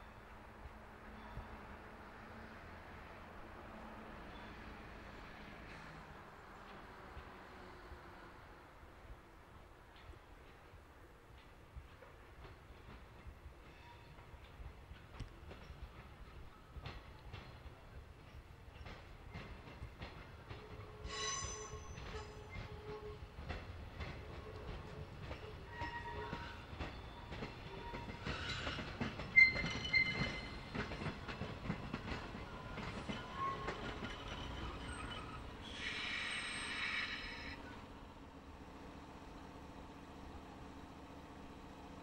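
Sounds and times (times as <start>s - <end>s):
train wheels squealing: 1.1s - 1.7s, 4.2s - 6.0s, 13.6s - 14.6s, 20.5s - 23.3s, 24.3s - 37.9s
train wheels clicking over rail joints: 9.8s - 37.5s.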